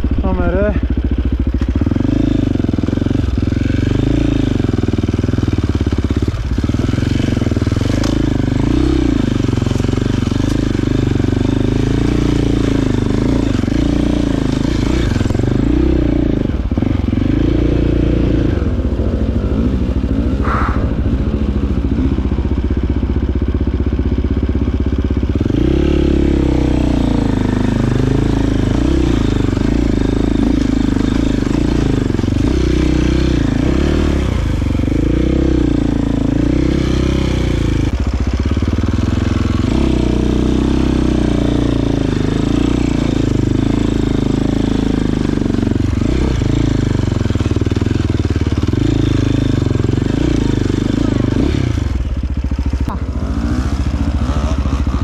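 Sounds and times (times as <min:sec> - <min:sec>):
motorcycle engine at low revs: 0:00.0 - 0:55.0.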